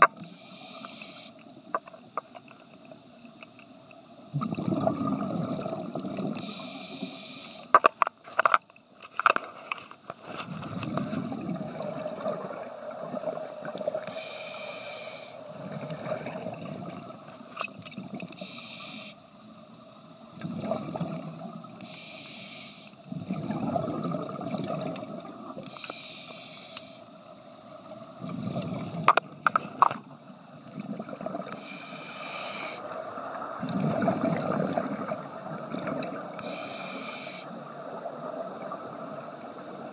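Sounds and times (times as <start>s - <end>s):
diver breathing through regulator: 0.2s - 1.4s, 6.4s - 7.7s, 13.4s - 15.5s, 18.4s - 19.2s, 21.8s - 23.0s, 25.6s - 27.1s, 31.5s - 32.9s, 36.4s - 37.6s
bubbles rumbling: 4.3s - 6.4s, 10.5s - 14.0s, 15.5s - 18.3s, 20.4s - 21.7s, 23.1s - 25.6s, 28.2s - 29.2s, 30.6s - 31.6s, 33.6s - 36.4s.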